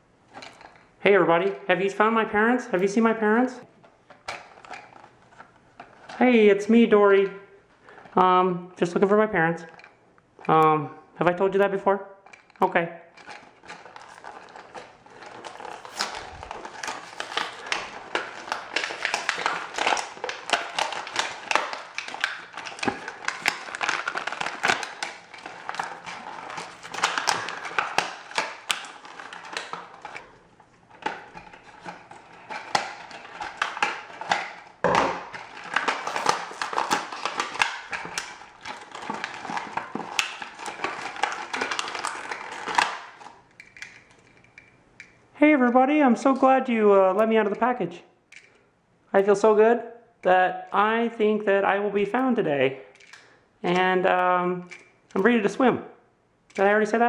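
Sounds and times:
plastic packaging crinkling: 0:04.1 - 0:07.0, 0:12.2 - 0:45.2, 0:52.3 - 0:55.6.

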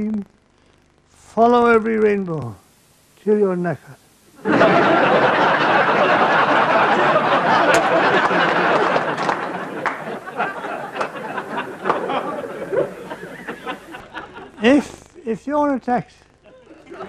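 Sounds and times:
audience laughing: 0:04.4 - 0:14.6, 0:16.5 - 0:17.0.

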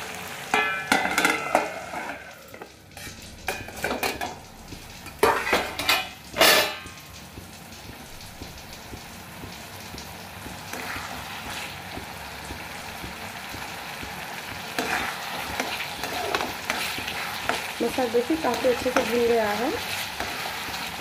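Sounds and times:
food sizzling and bubbling: 0:00.0 - 0:21.0
metal lid clattering: 0:00.5 - 0:04.4, 0:05.2 - 0:07.0.

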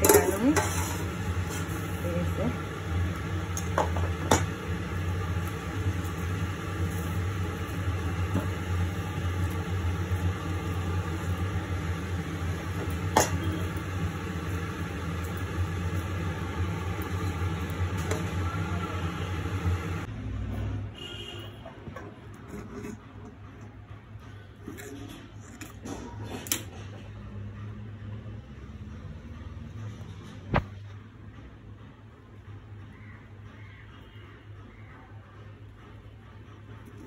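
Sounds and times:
steady motor hum: 0:00.0 - 0:20.1.

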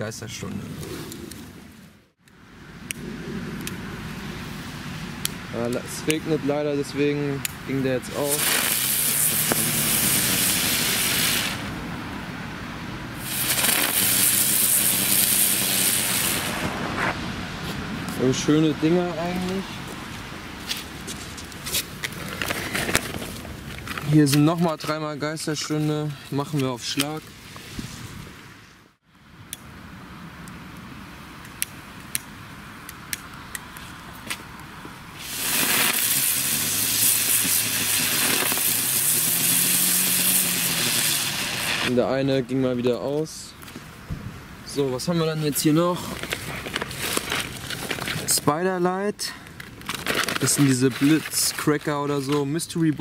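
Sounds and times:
sharp crackles: 0:02.8 - 0:11.8, 0:13.2 - 0:17.2, 0:19.2 - 0:27.8, 0:30.4 - 0:43.9, 0:44.7 - 0:53.0
ground firework hissing: 0:07.8 - 0:11.8, 0:13.2 - 0:17.2, 0:35.2 - 0:42.0.

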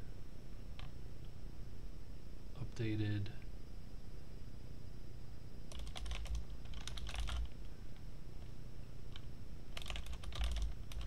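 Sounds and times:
computer keyboard typing: 0:05.7 - 0:07.6, 0:09.1 - 0:11.0.

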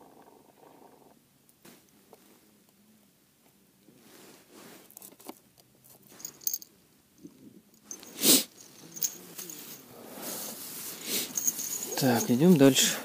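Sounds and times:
clothing rustling: 0:07.9 - 0:13.0.

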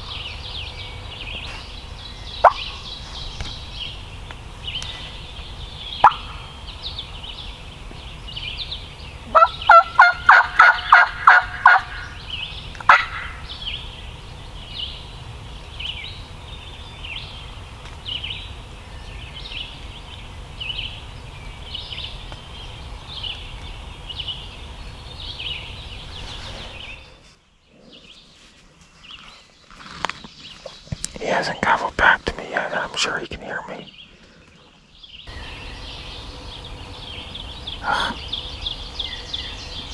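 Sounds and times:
songbirds chirping: 0:00.0 - 0:39.9
turkey yelps: 0:06.0 - 0:06.4, 0:09.3 - 0:12.0, 0:12.9 - 0:13.4.

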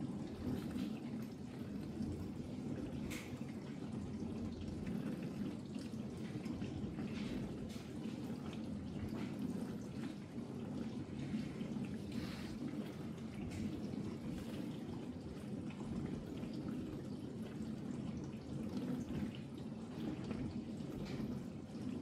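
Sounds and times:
dishwasher water rushing: 0:00.0 - 0:22.0.

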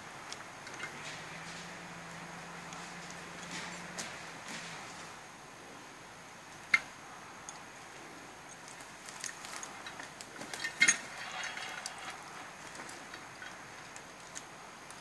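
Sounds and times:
branches rustling: 0:00.0 - 0:05.4, 0:06.4 - 0:15.0
metal knocks and clinks: 0:09.6 - 0:13.6.

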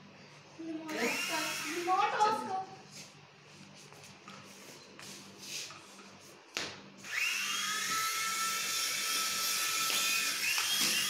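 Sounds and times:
small electric motor whine: 0:00.9 - 0:02.1, 0:07.0 - 0:11.0.

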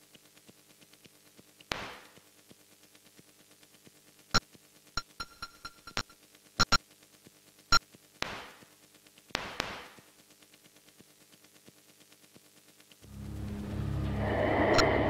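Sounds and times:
bursts of static noise: 0:00.0 - 0:15.0
sharp digital clicks: 0:05.0 - 0:06.8
faint steady drone: 0:12.0 - 0:15.0.

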